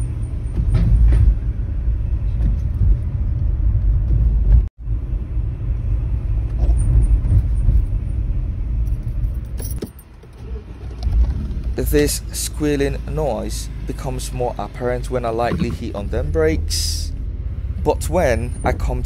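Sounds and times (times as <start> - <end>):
road and engine rumble: 0.0 - 19.0.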